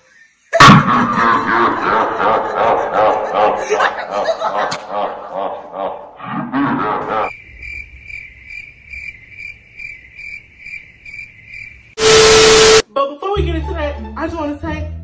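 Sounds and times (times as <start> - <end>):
crickets chirping: 7.0 - 12.0.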